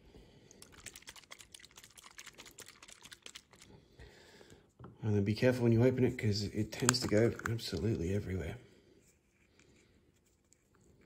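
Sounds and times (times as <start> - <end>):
plastic paint pot shaken: 0.6 - 3.8, 6.6 - 8.1.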